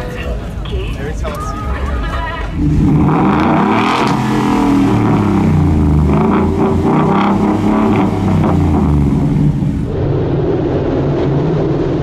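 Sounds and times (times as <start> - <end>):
truck engine revving: 2.0 - 10.0.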